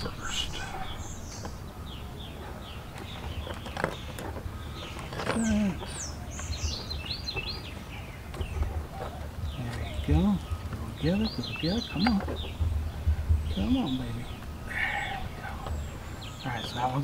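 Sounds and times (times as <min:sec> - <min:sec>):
birds chirping: 0:00.0 - 0:17.0
low rumble: 0:12.3 - 0:16.4.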